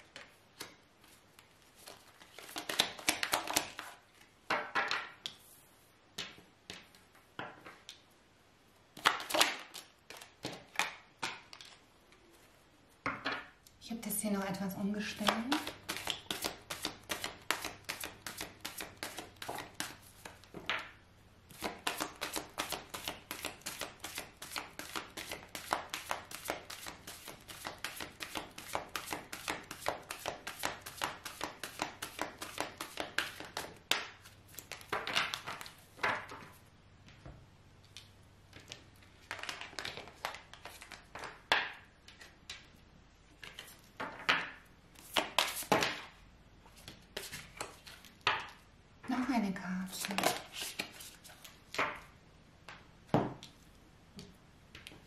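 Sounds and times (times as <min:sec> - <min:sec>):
cards being shuffled: 0:00.1 - 0:04.0, 0:15.2 - 0:20.5, 0:21.5 - 0:36.5, 0:38.5 - 0:41.4, 0:43.4 - 0:44.1, 0:45.0 - 0:46.0, 0:50.0 - 0:51.9.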